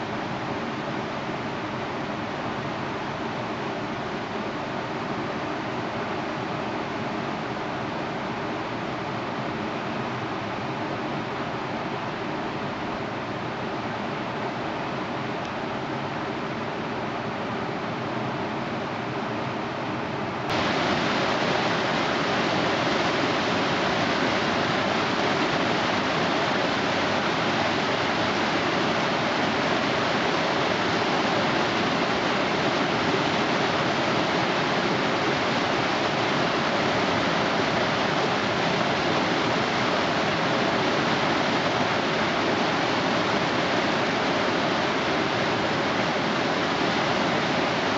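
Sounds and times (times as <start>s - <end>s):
whitewater rapids rushing: 20.5s - 47.9s.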